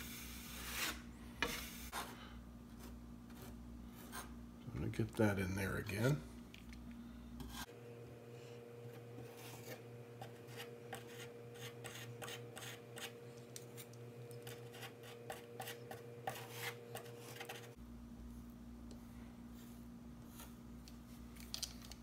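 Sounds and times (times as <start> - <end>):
putty knife scraping: 0.0 - 2.0
faint steady hum: 0.0 - 22.0.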